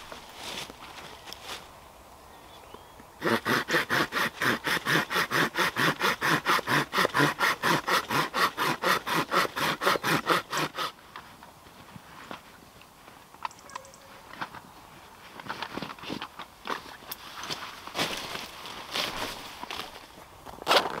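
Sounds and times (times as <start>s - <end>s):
hand saw cutting wood: 3.2s - 11.0s.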